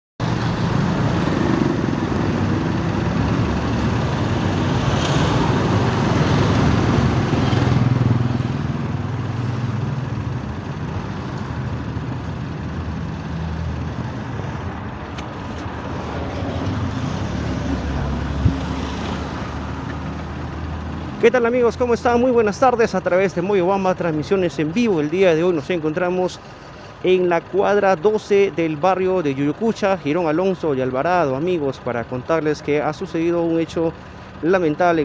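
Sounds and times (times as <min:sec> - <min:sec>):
motorcycle engines passing: 0:00.2 - 0:22.2
street traffic: 0:00.2 - 0:35.0.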